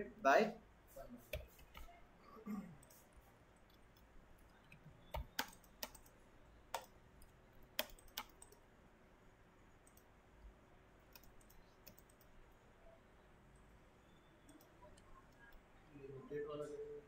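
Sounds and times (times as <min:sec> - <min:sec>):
computer mouse and keyboard clicks: 0:01.2 - 0:02.0, 0:02.8 - 0:08.6, 0:11.0 - 0:12.4.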